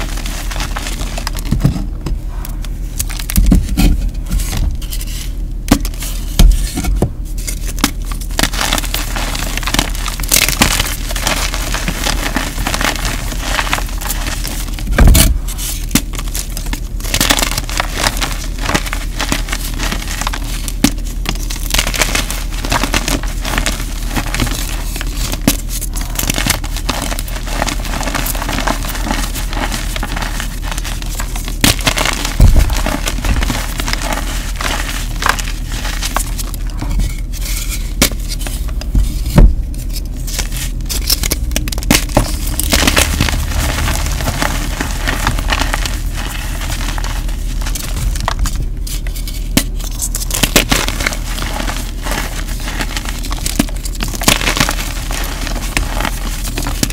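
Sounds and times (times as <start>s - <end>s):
chalk crunching in hands: 15.5s - 36.6s, 42.3s - 56.9s.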